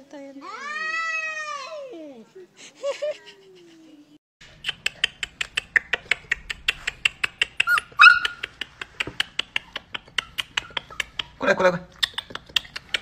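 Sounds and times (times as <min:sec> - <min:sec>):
dog claws clicking on tiled floor: 0:04.8 - 0:13.0
dog yelp: 0:07.6 - 0:08.4.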